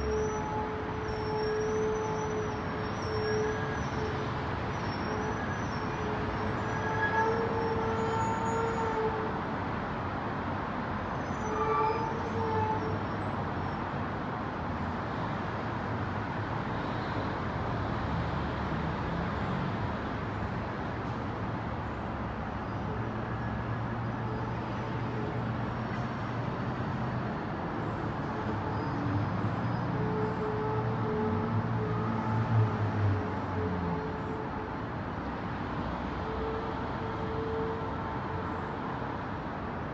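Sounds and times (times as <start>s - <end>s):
distant car horn: 0.0s - 9.4s, 11.2s - 13.0s, 28.2s - 34.8s, 35.9s - 38.8s
city traffic rush: 0.0s - 39.9s.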